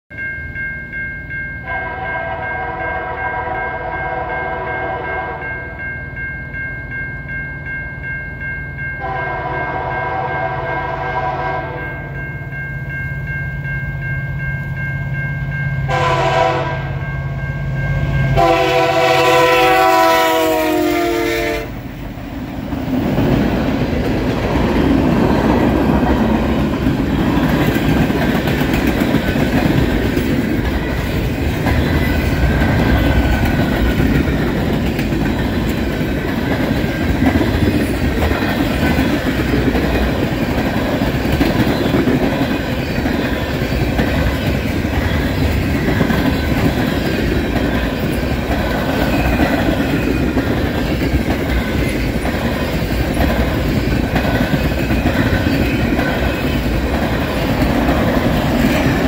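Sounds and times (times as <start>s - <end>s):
locomotive horn blasts: 1.7s - 5.5s, 9.0s - 12.1s, 15.9s - 17.1s, 18.4s - 21.8s
train wheels clattering on rails: 22.0s - 59.0s.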